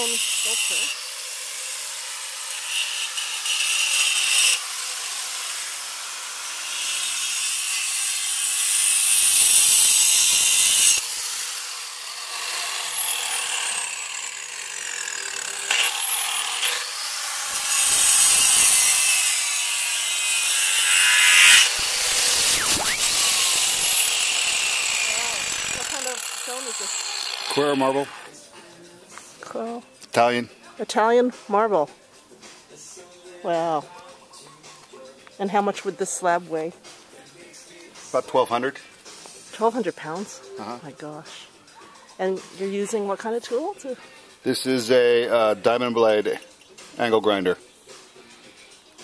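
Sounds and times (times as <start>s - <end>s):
angle grinder cutting stone: 0.0s - 28.3s.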